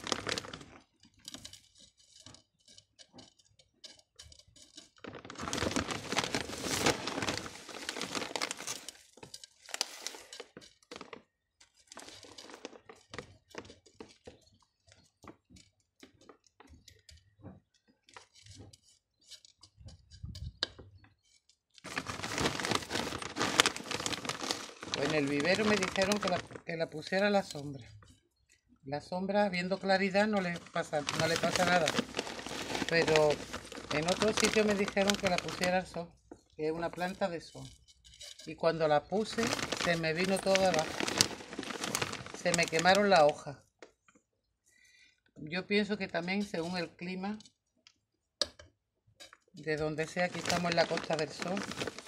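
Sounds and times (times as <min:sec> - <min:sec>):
gravel rustling and pouring: 0:00.0 - 0:14.4, 0:21.8 - 0:27.8, 0:29.8 - 0:36.0, 0:38.8 - 0:43.5, 0:50.0 - 0:52.0
plastic bag crinkling: 0:00.0 - 0:16.9, 0:21.8 - 0:28.1, 0:29.6 - 0:43.6, 0:49.8 - 0:52.0
small stones clinking and crunching: 0:00.0 - 0:20.8, 0:21.8 - 0:27.9, 0:29.8 - 0:36.0, 0:36.7 - 0:43.4, 0:49.9 - 0:52.0.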